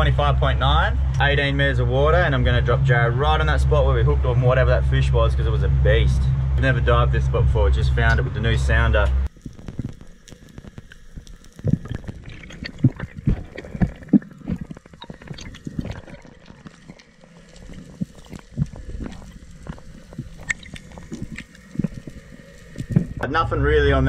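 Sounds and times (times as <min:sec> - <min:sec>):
water moving underwater: 0:09.2 - 0:24.0.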